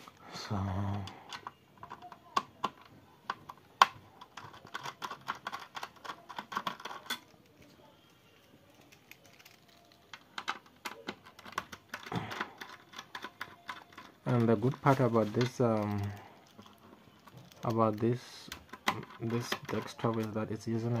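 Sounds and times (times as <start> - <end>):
small metal parts clicking: 4.2 - 7.7, 8.7 - 20.4.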